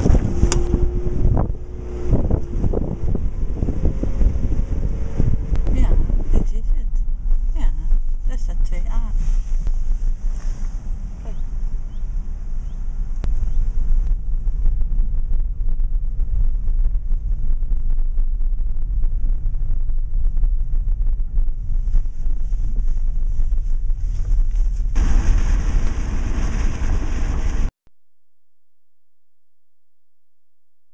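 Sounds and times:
car road noise rumble: 0.0 - 27.7
wind buffeting microphone: 0.0 - 27.7.

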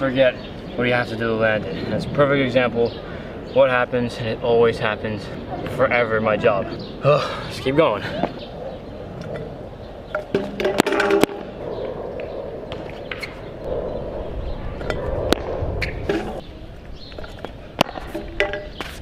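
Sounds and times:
scooter deck clacking on ground: 10.1 - 11.5, 17.2 - 19.0.

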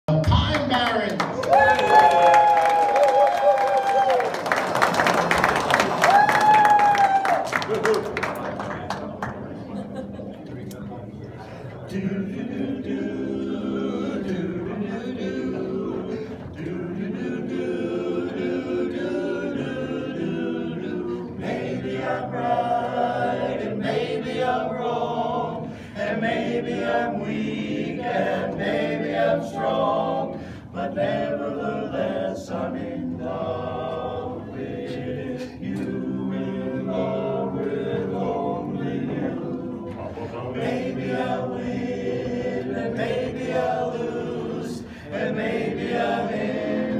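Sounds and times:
men's chorus singing a cappella: 11.9 - 46.9
singers breathing: 25.6 - 26.0, 30.3 - 30.8, 44.8 - 45.2.

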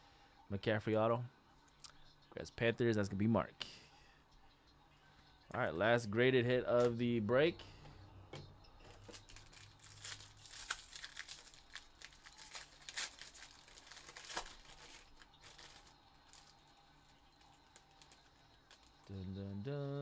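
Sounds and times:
foil wrapper crinkling and tearing: 9.0 - 19.1.

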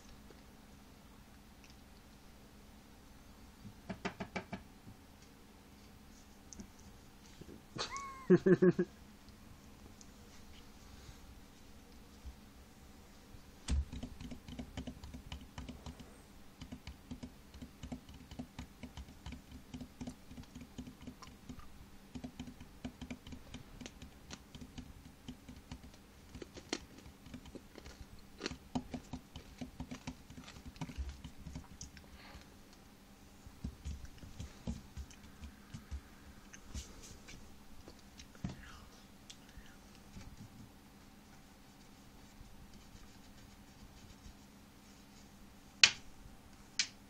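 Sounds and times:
rapid light taps and clicks: 13.7 - 32.0, 33.5 - 37.4.

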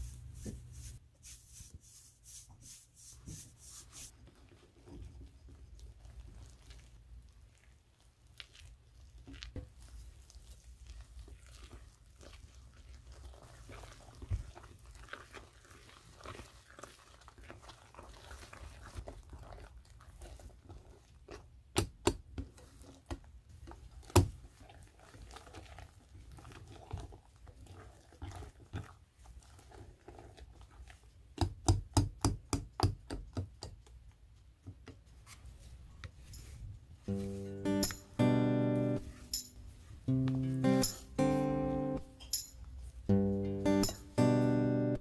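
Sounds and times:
whisk stirring thick batter: 0.0 - 35.7.

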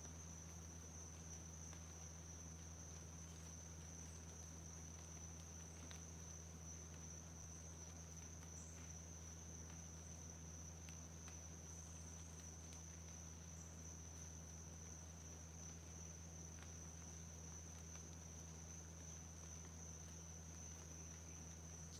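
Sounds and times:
high-pitched insect chorus: 0.0 - 21.9
low steady hum: 0.0 - 21.9.

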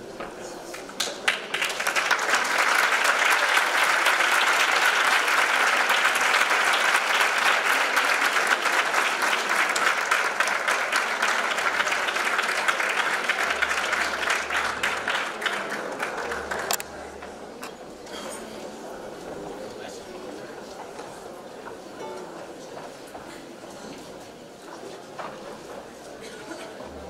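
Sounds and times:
audience applauding: 0.6 - 17.5.

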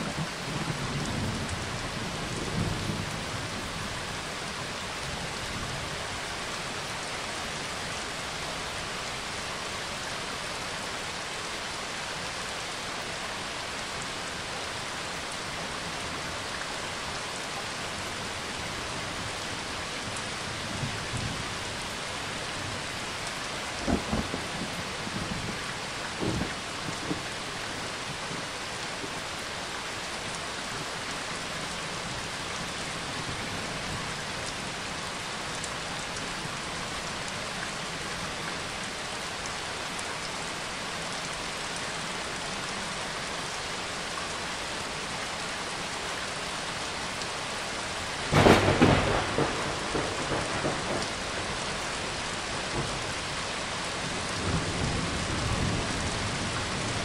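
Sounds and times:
steady rain: 0.0 - 57.0
thunder clap rumbling: 23.8 - 25.5, 48.3 - 51.7.

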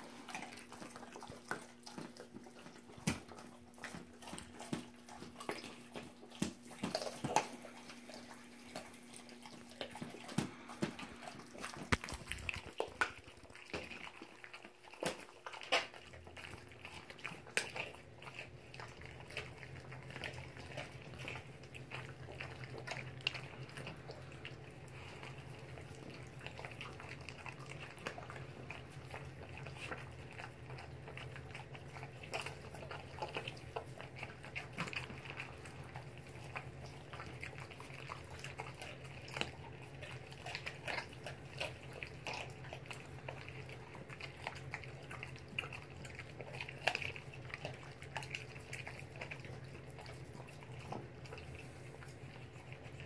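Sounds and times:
steady low hum: 0.0 - 14.3
dog chewing fish: 0.0 - 53.0.

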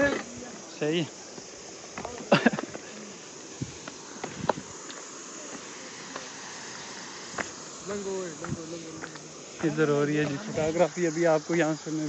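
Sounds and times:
insects chirring: 0.0 - 12.0
footsteps on stony path: 1.2 - 6.3, 7.3 - 7.6, 8.3 - 10.8.

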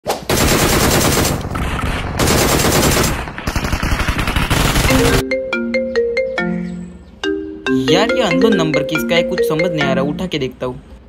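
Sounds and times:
machine-gun-like fire bursts: 0.2 - 5.2
marimba phone ringtone: 4.9 - 10.5.

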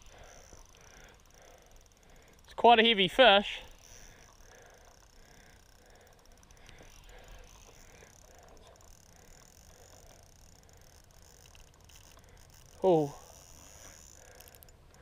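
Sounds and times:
soft ticks: 0.0 - 3.0, 3.7 - 15.0
faint outdoor hiss: 0.0 - 15.0.

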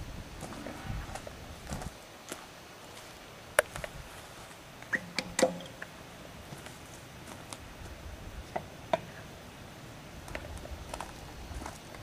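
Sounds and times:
footsteps on gravel: 0.4 - 4.6, 6.4 - 8.0, 10.2 - 12.0.

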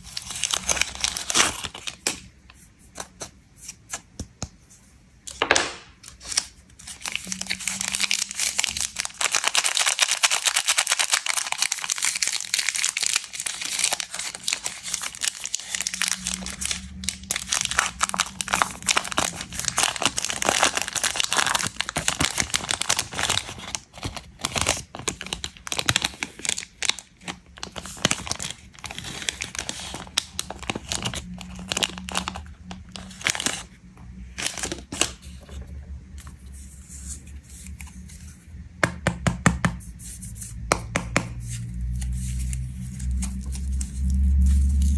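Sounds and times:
plastic wrapper crinkling: 0.0 - 2.5, 5.3 - 35.5, 41.7 - 44.9.

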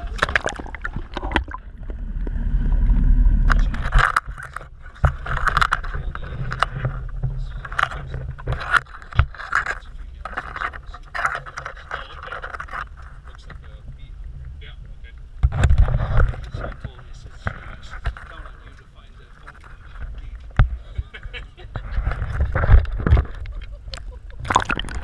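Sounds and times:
water rushing: 0.0 - 8.5, 24.4 - 25.0
low steady hum: 0.0 - 25.0.

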